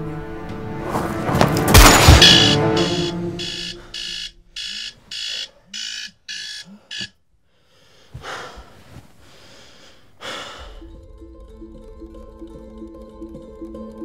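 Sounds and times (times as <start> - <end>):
electronic alarm beeping: 1.8 - 7.1.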